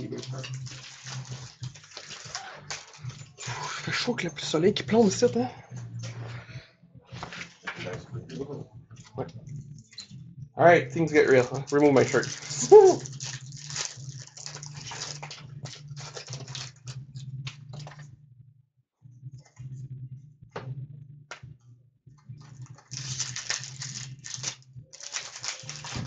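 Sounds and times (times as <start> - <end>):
card packs being torn open: 0.0 - 3.3, 11.1 - 17.9, 22.6 - 26.0
wrapper crinkling: 0.0 - 3.4, 11.1 - 17.0, 22.7 - 26.0
low hum: 2.6 - 24.9.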